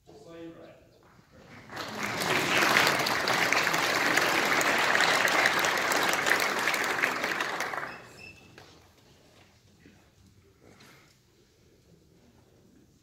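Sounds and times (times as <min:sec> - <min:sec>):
audience applauding: 0:01.4 - 0:08.7.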